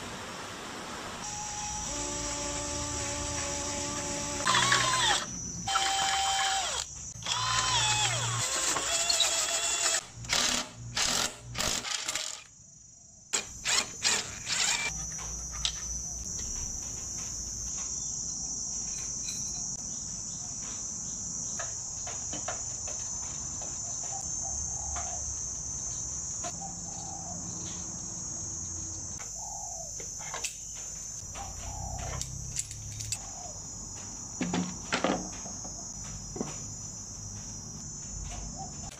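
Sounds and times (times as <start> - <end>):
high insect chirring: 1.2 - 11.7, 13.4 - 38.9
cordless drill boring through wood: 1.3 - 12.5, 13.4 - 14.9.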